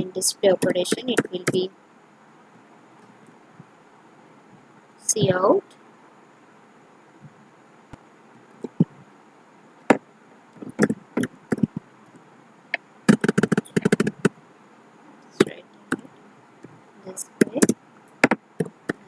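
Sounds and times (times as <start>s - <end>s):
computer keyboard typing: 0.6s - 1.6s, 10.6s - 11.8s, 13.1s - 14.3s.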